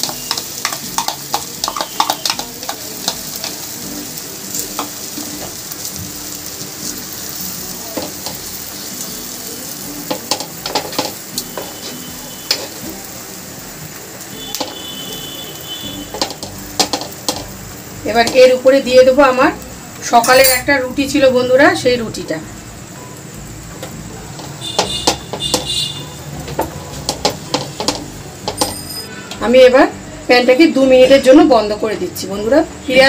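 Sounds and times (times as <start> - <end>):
spoon scraping and tapping a pan: 0.0 - 3.7, 10.1 - 12.9, 14.5 - 14.9, 16.1 - 17.5, 23.8 - 29.2
batter sizzling in a pan: 0.0 - 31.8.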